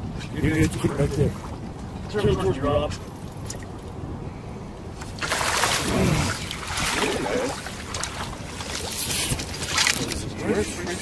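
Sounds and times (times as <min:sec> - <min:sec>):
water splashing: 0:05.0 - 0:10.3.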